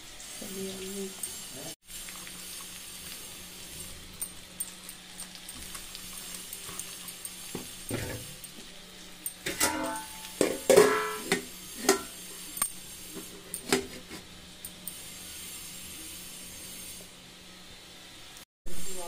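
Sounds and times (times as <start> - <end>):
steel plate clanking on a pan: 9.3 - 12.2.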